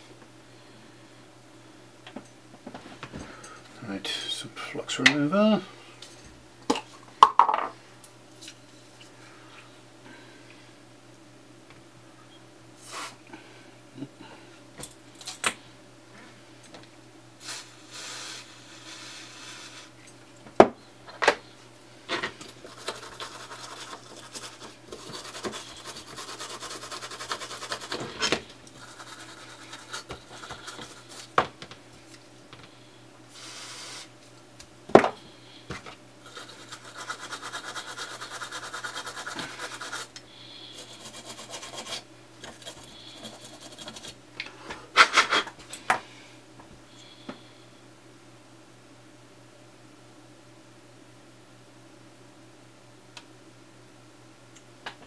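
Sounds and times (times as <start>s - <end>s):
toothbrush scrubbing circuit board: 22.6s - 28.0s, 28.8s - 31.2s, 36.3s - 40.1s, 40.7s - 44.2s.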